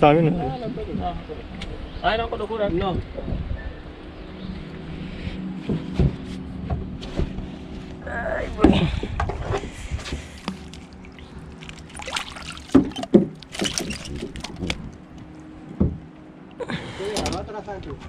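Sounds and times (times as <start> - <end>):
water splashing: 10.1 - 15.5.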